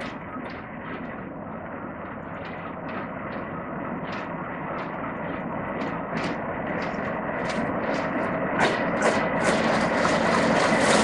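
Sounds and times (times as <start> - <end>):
diesel locomotive rumbling: 0.0 - 11.0.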